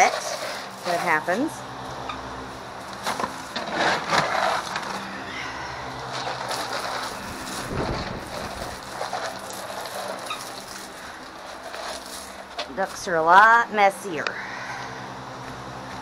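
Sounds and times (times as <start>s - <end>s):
straw bedding rustling and crunching: 6.0s - 13.1s.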